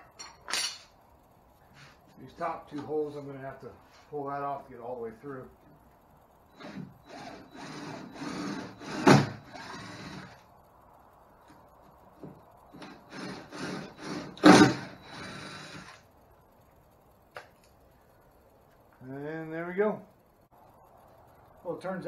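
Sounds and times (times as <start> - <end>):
cordless drill boring holes: 6.5 - 10.4, 12.7 - 16.0.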